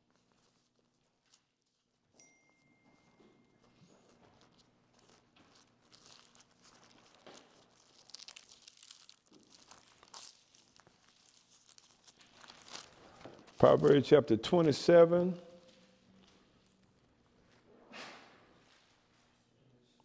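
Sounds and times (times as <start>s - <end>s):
thin pages rustling: 3.6s - 14.0s.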